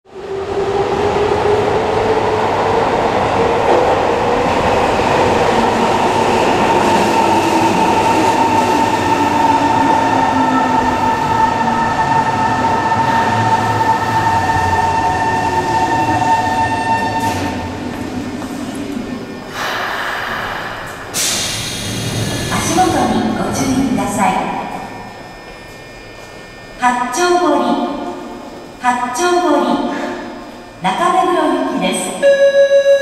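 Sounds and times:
train wheels rumbling on rails: 0:00.1 - 0:23.5.

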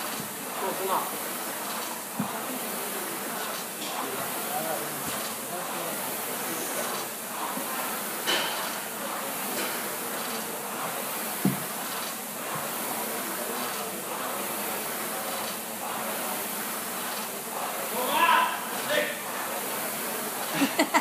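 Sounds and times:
rowing machine fan whooshing: 0:00.0 - 0:21.0.

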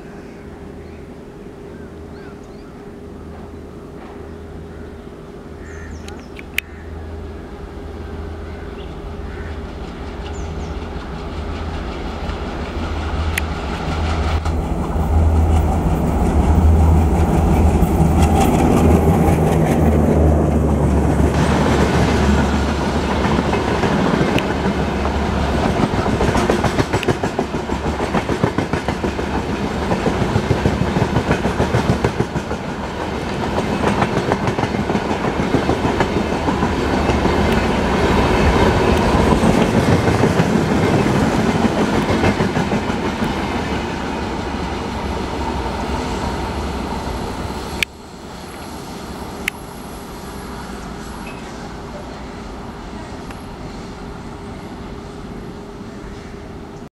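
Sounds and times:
locomotive engine drone: 0:00.0 - 0:56.8
train wheels clacking on track: 0:09.4 - 0:46.6.

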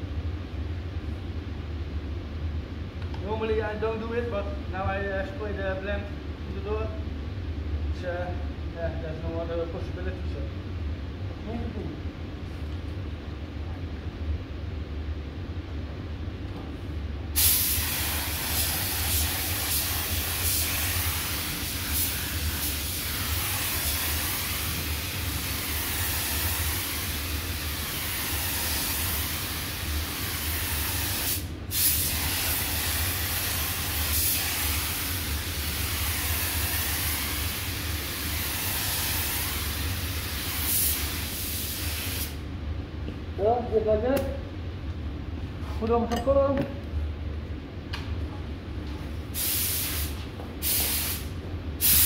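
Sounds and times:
steady low hum: 0:00.0 - 0:52.0
paint spray gun hissing: 0:17.4 - 0:42.4, 0:49.4 - 0:52.0.

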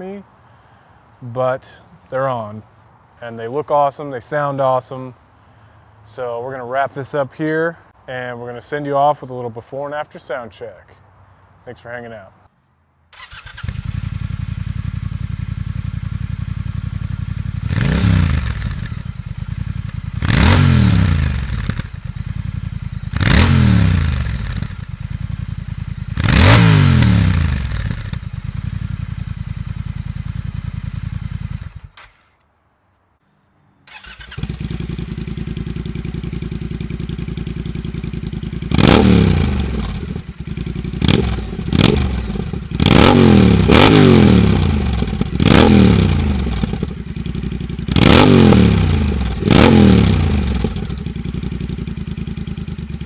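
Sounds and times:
motorcycle engine idling and revving: 0:13.2 - 0:32.4, 0:33.9 - 0:53.0.

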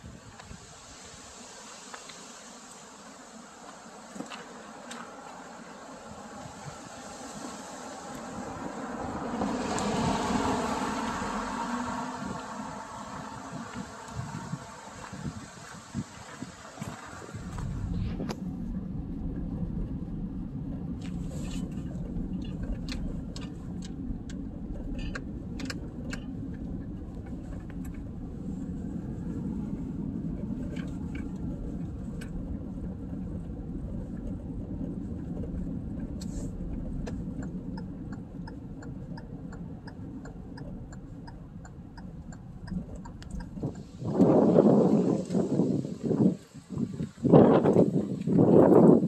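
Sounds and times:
tyre and engine rumble: 0:03.6 - 0:49.0
light evenly spaced ticks: 0:19.1 - 0:44.4.

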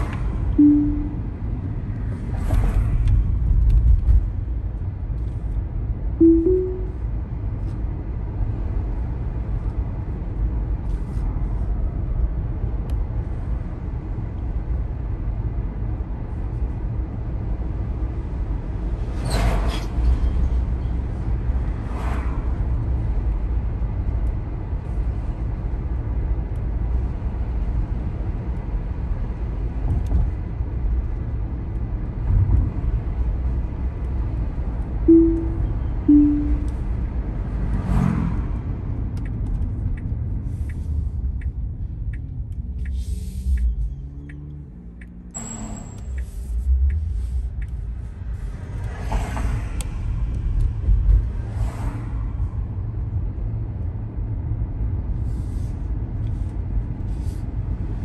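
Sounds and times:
road and tyre rumble: 0:00.0 - 0:58.0
two-note car chime: 0:00.6 - 0:01.4, 0:06.2 - 0:07.0, 0:35.1 - 0:36.9.

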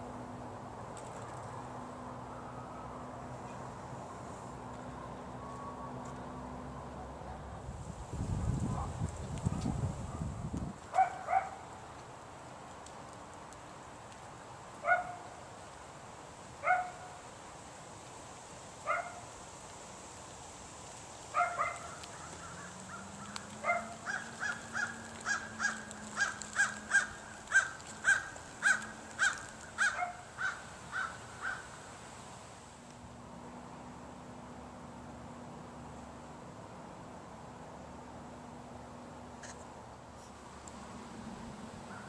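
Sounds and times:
crows cawing: 0:21.9 - 0:31.8.

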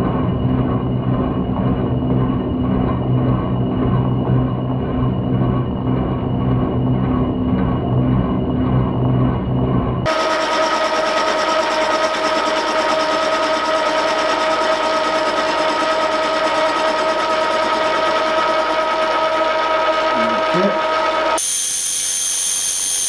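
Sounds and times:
machine whining tones: 0:00.0 - 0:23.0
milling machine cutting metal: 0:10.1 - 0:23.0.

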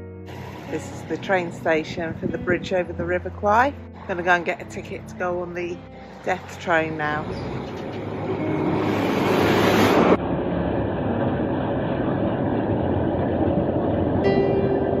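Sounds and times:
train engine and wheels rumbling: 0:00.3 - 0:15.0
steady pitched tone: 0:08.1 - 0:15.0.

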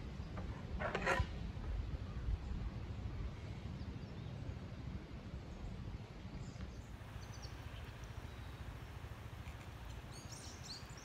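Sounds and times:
wind rumbling on microphone: 0:00.0 - 0:11.0
faint bird chirps: 0:06.7 - 0:09.0.

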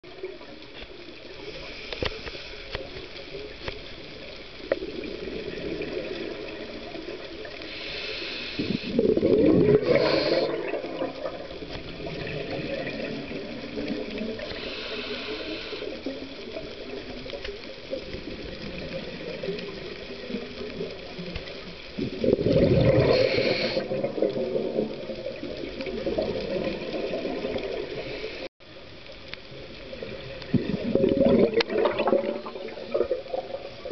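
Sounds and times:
hissing regulator breaths: 0:07.5 - 0:09.0, 0:09.8 - 0:10.6, 0:14.5 - 0:16.1, 0:23.0 - 0:23.9
diver exhaling bubbles: 0:08.6 - 0:15.9, 0:22.0 - 0:28.5, 0:30.5 - 0:33.9.

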